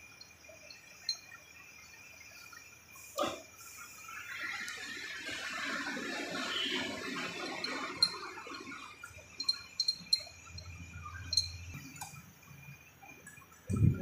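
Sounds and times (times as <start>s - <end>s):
light metallic clinks: 0.0s - 3.1s, 7.4s - 12.2s.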